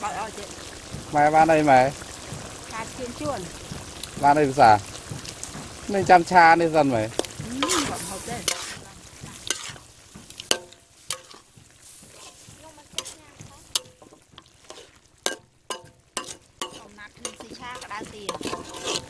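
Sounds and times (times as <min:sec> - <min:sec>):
faint sizzle of stir-fry: 0:00.0 - 0:19.0
metal ladle scraping a wok: 0:07.1 - 0:19.0.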